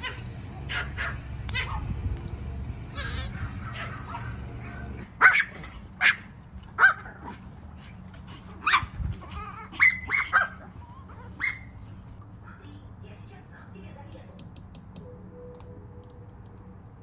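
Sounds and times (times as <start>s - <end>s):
small dogs yapping: 0.0s - 2.3s, 2.9s - 12.2s.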